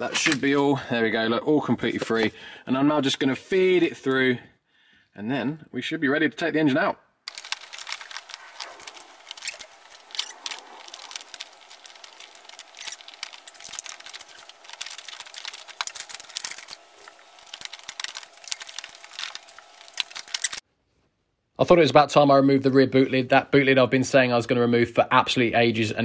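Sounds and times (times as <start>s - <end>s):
plastic wiring rustling and clicking: 7.3s - 20.6s.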